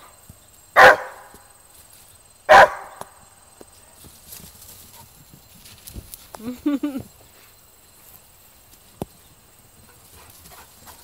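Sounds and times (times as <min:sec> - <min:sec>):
dog barking loudly: 0:00.8 - 0:01.3, 0:02.5 - 0:03.0
dog feet running on grass: 0:03.6 - 0:11.0.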